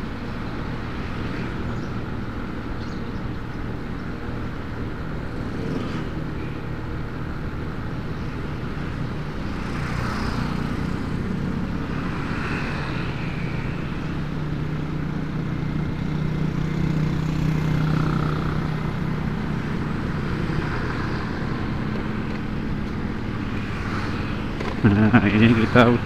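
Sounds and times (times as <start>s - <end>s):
road and wind noise: 0.0s - 26.0s
motorcycle engine cruising: 4.4s - 6.4s, 9.2s - 26.0s.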